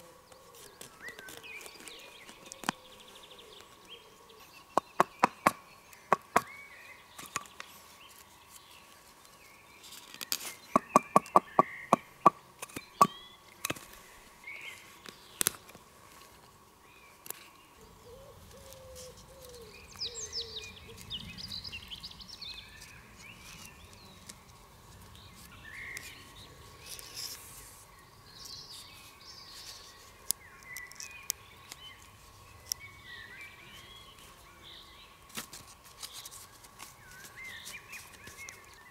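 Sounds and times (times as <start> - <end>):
birds chirping: 0.0 - 38.9
rustling of split wood pieces: 0.3 - 3.9, 28.5 - 32.9.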